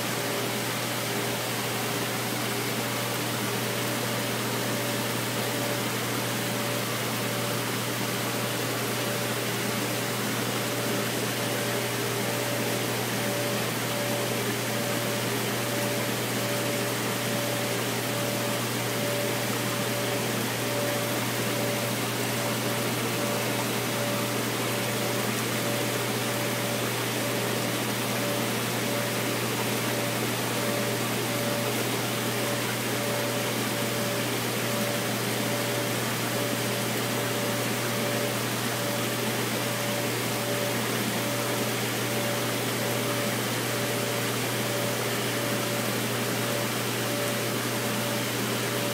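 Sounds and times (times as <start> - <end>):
aquarium equipment hum: 0.0 - 48.9.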